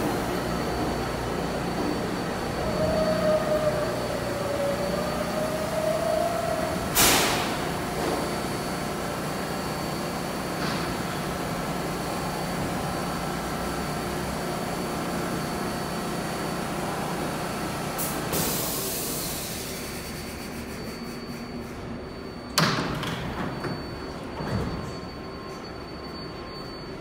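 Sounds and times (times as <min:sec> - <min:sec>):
subway train equipment hum: 0:00.0 - 0:27.0
air hiss: 0:07.0 - 0:07.6.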